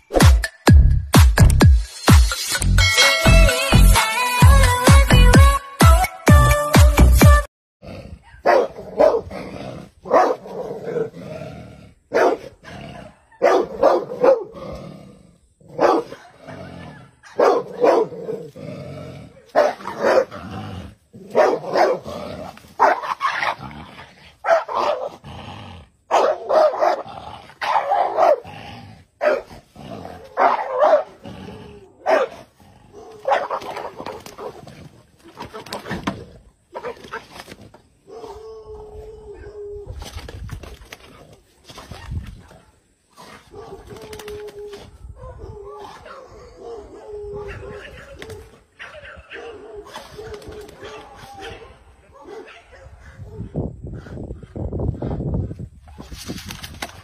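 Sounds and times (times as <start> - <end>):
dog barking: 8.2 - 9.3, 10.0 - 11.1, 12.1 - 14.6, 15.8 - 18.3, 19.4 - 20.4, 21.3 - 22.1, 22.8 - 23.2, 24.4 - 25.1, 26.1 - 28.5, 29.2 - 29.5, 30.4 - 31.2, 32.0 - 34.6, 43.4 - 43.9, 45.2 - 48.2, 48.8 - 53.5.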